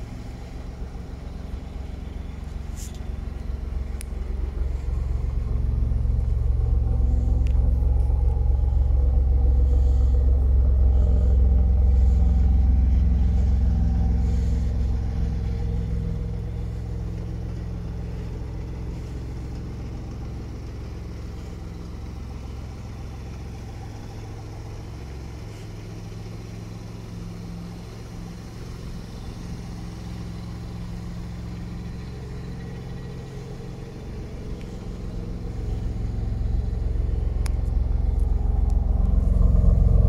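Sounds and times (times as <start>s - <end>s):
car engine idling: 0.0s - 40.0s.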